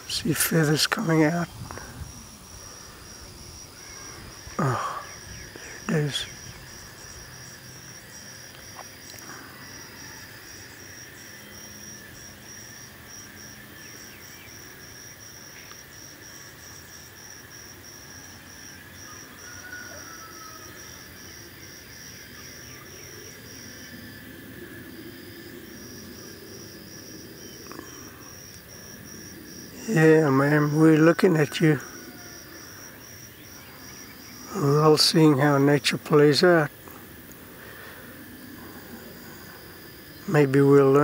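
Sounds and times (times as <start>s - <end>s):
high-pitched insect chirping: 0.0s - 41.0s.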